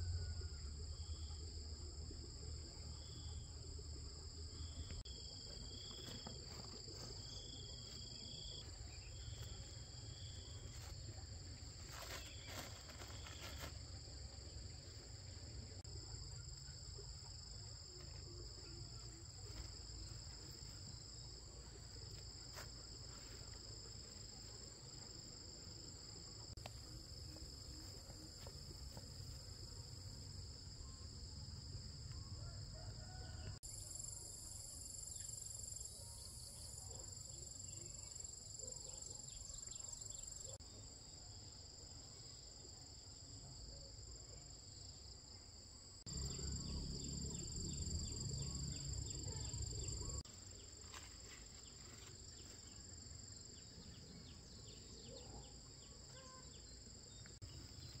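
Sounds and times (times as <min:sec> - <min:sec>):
insect chorus trilling: 0:46.1 - 0:50.3.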